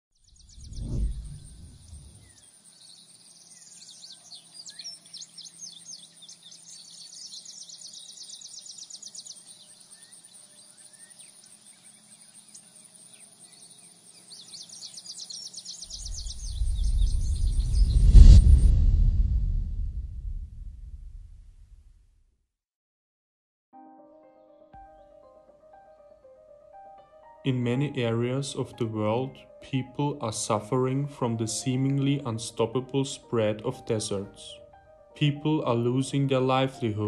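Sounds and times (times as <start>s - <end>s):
birds chirping and twittering: 0.2s - 18.0s
deep bass rumble hit: 16.0s - 21.8s.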